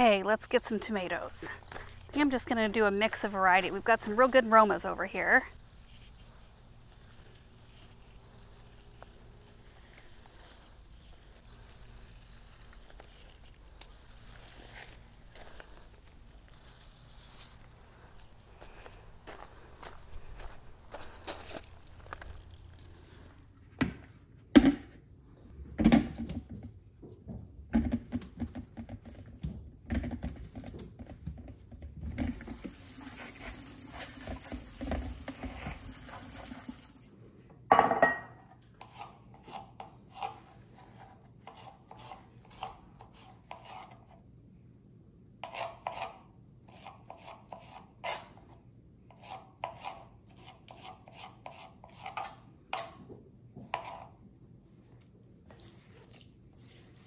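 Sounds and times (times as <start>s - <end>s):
bowls and utensils knocking: 37.7s - 38.4s.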